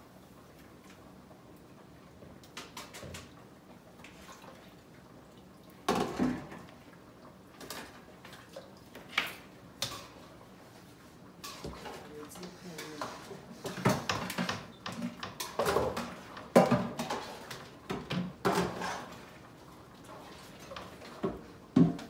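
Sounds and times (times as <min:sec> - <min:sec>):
pots knocking and clinking: 0:05.9 - 0:06.7, 0:12.8 - 0:19.2, 0:20.6 - 0:22.0.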